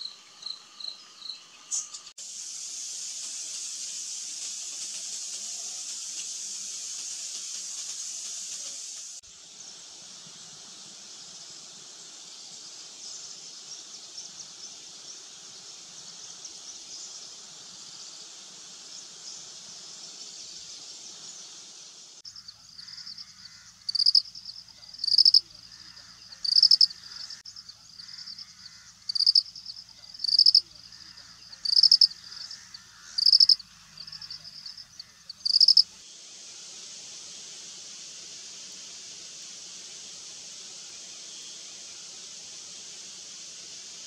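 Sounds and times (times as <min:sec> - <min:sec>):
short high insect chirp: 0:19.2 - 0:36.0
high-pitched insect drone: 0:22.3 - 0:35.9.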